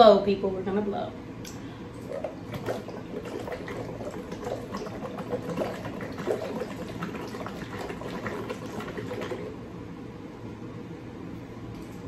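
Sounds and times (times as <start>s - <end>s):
slurping drink through straw: 2.0s - 9.6s.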